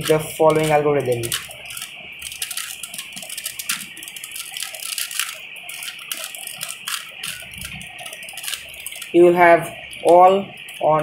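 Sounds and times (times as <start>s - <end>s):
puzzle cube layers clicking: 0.0s - 9.2s.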